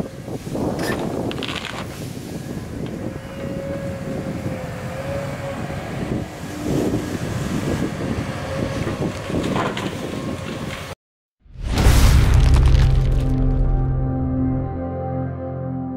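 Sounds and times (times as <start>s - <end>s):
excavator diesel engine working: 2.8s - 10.9s.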